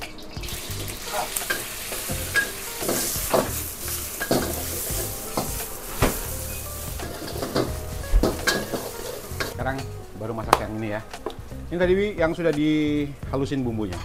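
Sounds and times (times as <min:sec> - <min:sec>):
rice sizzling in a wok: 0:00.0 - 0:09.6
metal spatula scraping a wok: 0:01.0 - 0:09.6.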